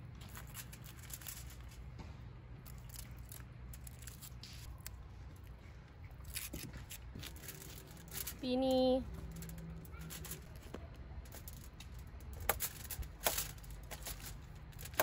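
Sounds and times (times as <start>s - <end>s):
low steady hum: 0.0s - 15.0s
food being cut and handled: 2.6s - 8.5s.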